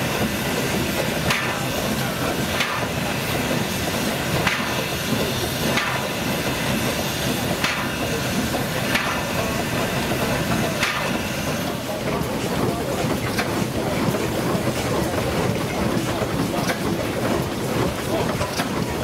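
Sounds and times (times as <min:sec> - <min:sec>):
machine running with hissing noise: 0:00.0 - 0:19.0
sharp machine knocks: 0:01.3 - 0:01.7, 0:04.4 - 0:04.8, 0:05.7 - 0:06.2, 0:07.6 - 0:08.1, 0:10.7 - 0:11.3.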